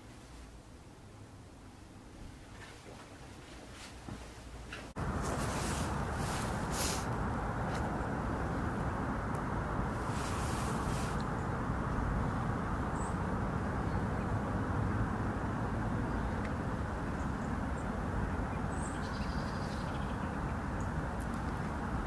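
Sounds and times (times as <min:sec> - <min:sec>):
low background rumble: 0:04.5 - 0:22.0.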